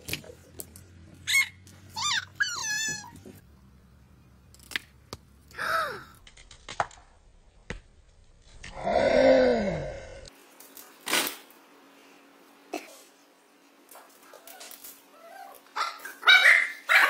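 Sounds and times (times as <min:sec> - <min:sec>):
dog whining: 0:01.3 - 0:03.4.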